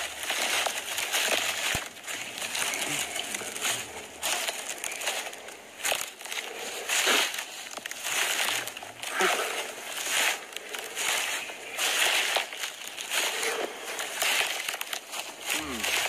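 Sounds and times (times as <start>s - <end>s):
footsteps crunching through dry leaves: 0.0s - 16.0s.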